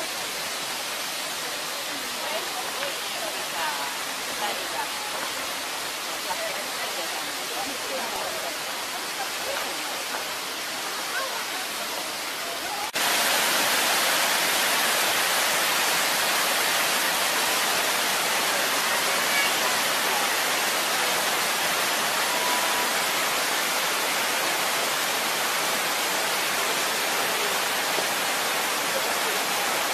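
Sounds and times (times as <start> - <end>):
waterfall rushing: 0.0 - 29.9.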